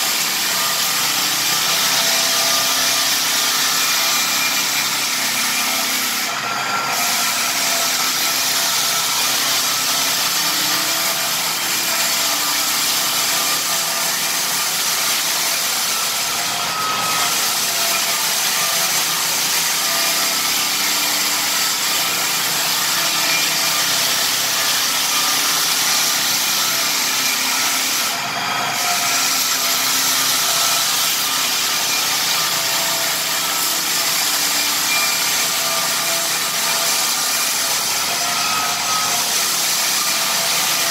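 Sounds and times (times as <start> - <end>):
floor sander hissing on wood: 0.0 - 40.9.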